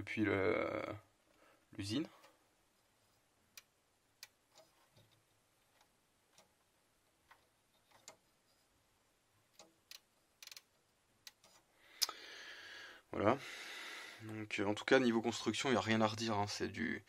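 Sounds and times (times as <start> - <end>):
small plastic gear clicks: 9.6 - 11.6.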